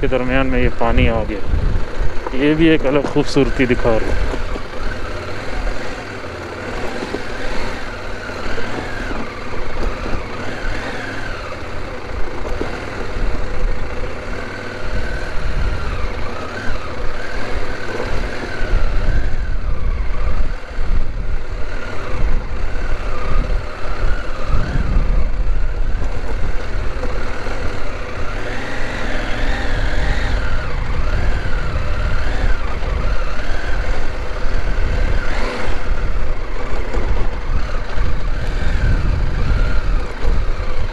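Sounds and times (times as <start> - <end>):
wind rumble on microphone: 0.0 - 5.9, 6.9 - 40.9
motorcycle engine running: 0.0 - 40.9.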